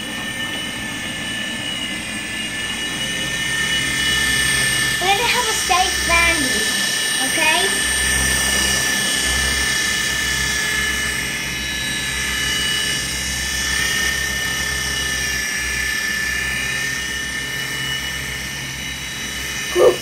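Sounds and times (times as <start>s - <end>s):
rotor blades fluttering: 0.0s - 20.0s
toy helicopter motor whine: 0.0s - 20.0s.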